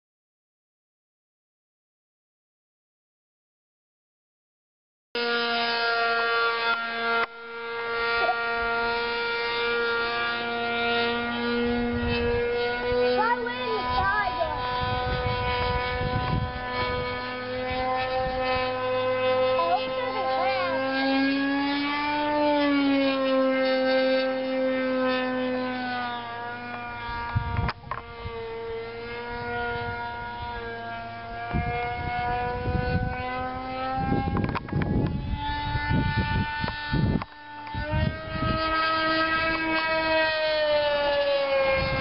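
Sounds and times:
model plane engine whine: 5.2s - 42.0s
wind gusts on microphone: 11.5s - 21.4s, 26.9s - 40.4s, 41.5s - 42.0s.

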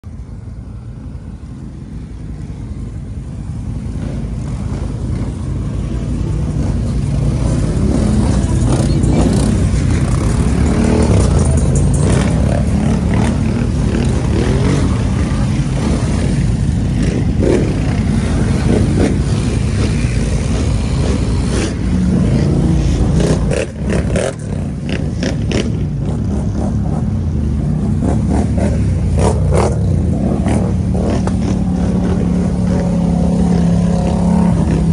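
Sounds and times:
atv engines revving: 0.1s - 34.9s.

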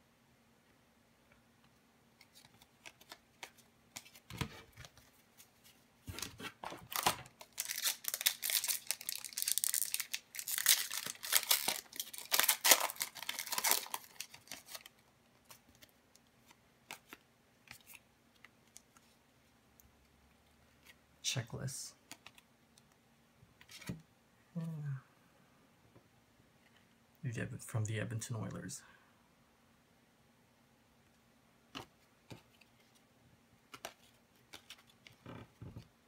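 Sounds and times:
foil wrapper crinkling and tearing: 6.8s - 15.0s.

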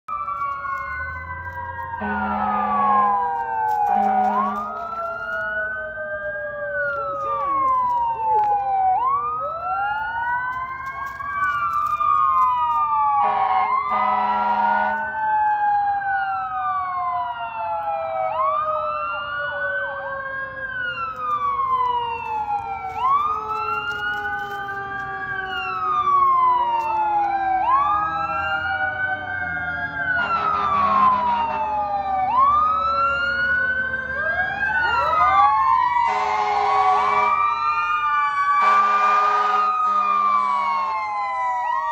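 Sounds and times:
emergency sirens wailing: 0.0s - 41.9s
horn blasts: 2.0s - 3.0s, 13.2s - 15.1s, 30.2s - 31.6s, 36.1s - 37.3s, 38.6s - 40.3s.

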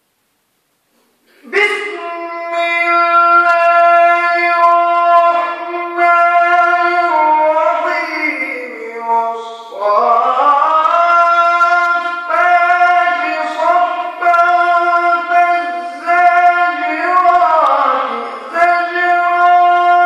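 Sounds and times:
person chanting recitation: 1.3s - 20.0s.

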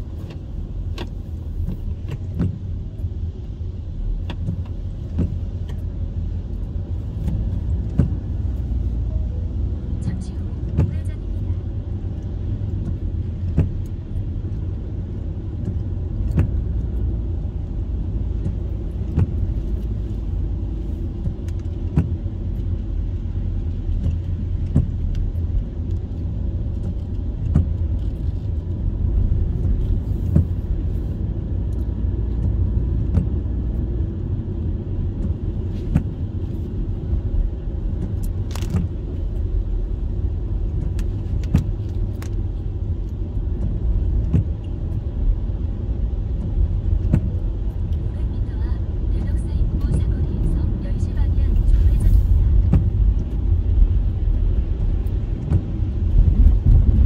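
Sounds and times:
road rumble and tyre noise: 0.0s - 57.0s
windshield wipers tapping: 0.0s - 57.0s.

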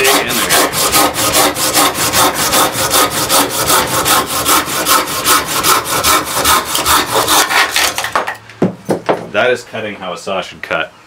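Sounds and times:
hand saw cutting log: 0.0s - 8.1s.

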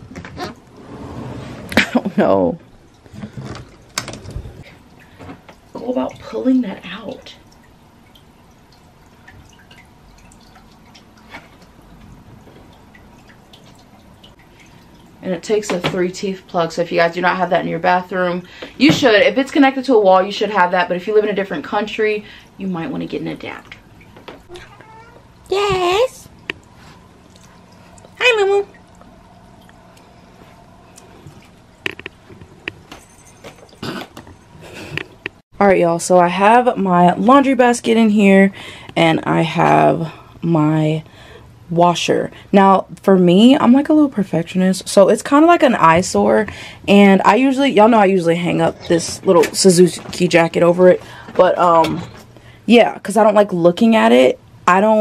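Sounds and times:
low steady hum: 0.0s - 55.0s
water dripping: 1.8s - 35.4s.

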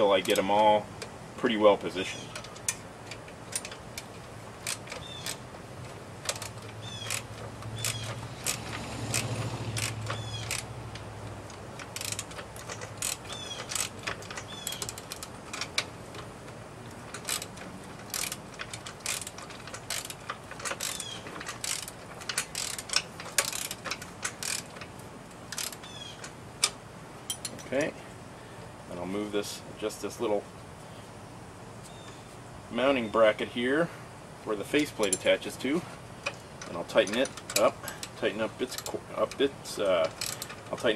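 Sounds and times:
ratchet wrench clicking: 0.1s - 1.1s, 2.1s - 27.6s, 36.2s - 40.9s.

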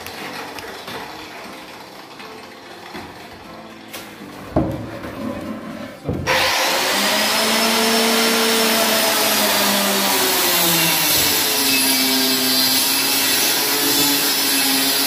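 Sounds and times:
power tool running with whine: 6.3s - 15.0s.

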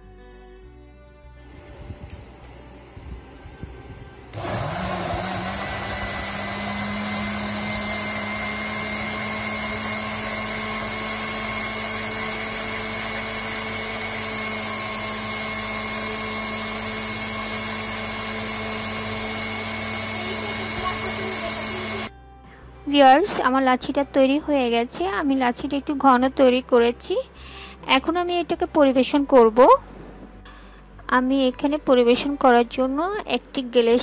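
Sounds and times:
blender motor whining: 4.3s - 22.1s.

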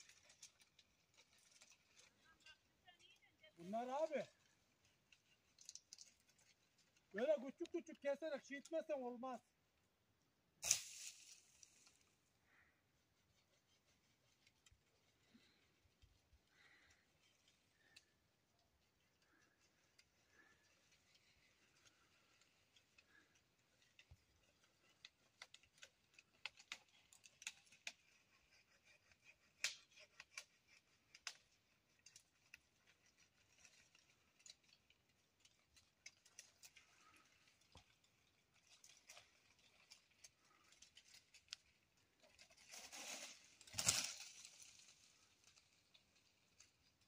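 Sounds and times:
branch rustle and thud: 0.0s - 2.3s, 4.3s - 7.2s, 10.6s - 12.2s, 31.2s - 47.0s
clicks and twig snaps: 5.1s - 7.0s, 10.6s - 12.0s, 22.7s - 28.0s, 29.6s - 30.5s, 43.1s - 47.0s.

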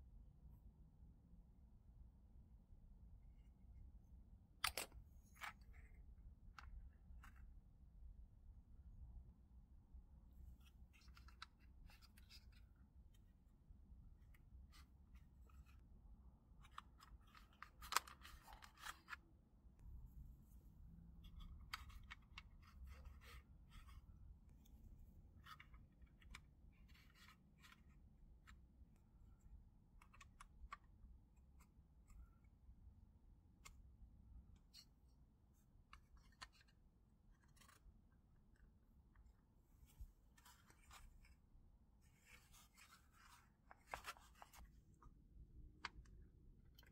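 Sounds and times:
plastic parts clicking and scraping: 4.6s - 5.9s, 10.6s - 13.2s, 14.3s - 19.2s, 21.2s - 24.2s, 35.9s - 39.4s, 42.0s - 46.9s.

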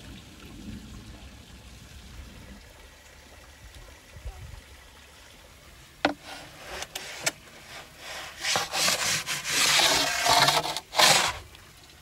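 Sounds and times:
wooden peel scraping oven floor: 6.2s - 11.4s.

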